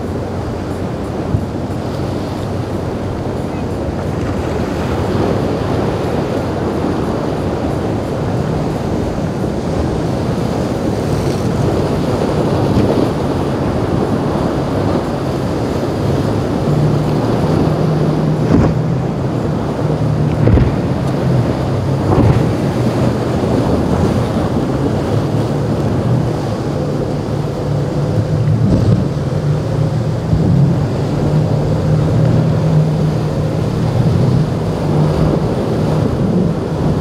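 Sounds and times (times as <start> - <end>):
boat engines humming: 0.0 - 37.0
waves splashing: 0.0 - 37.0
wind on microphone: 0.0 - 37.0.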